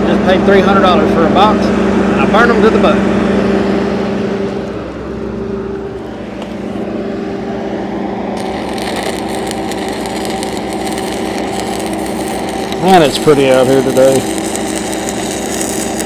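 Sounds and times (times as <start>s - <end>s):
engine hum: 0.0s - 16.0s
welding arc crackling sizzle: 8.3s - 16.0s.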